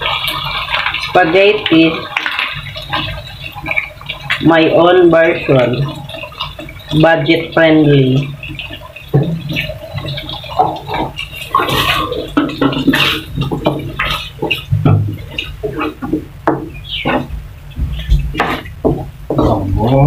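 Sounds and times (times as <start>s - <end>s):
sauce bubbling and popping: 0.0s - 20.0s
spatula stirring sauce: 8.2s - 19.3s.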